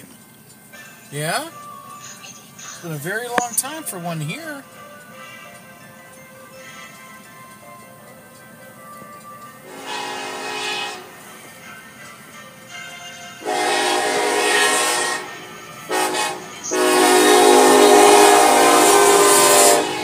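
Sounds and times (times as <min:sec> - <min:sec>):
locomotive air horn blasts: 0:09.7 - 0:11.2, 0:13.4 - 0:20.0.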